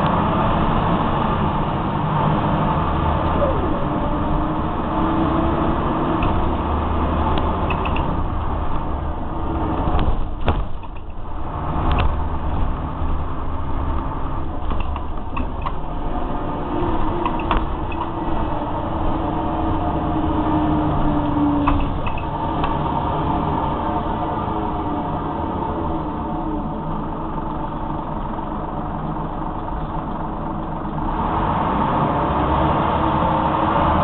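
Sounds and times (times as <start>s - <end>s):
bus engine drone: 0.0s - 34.0s
transmission whine: 2.3s - 31.1s
sharp knocks: 9.9s - 11.2s
body rattles and clicks: 9.9s - 12.2s, 14.6s - 15.9s.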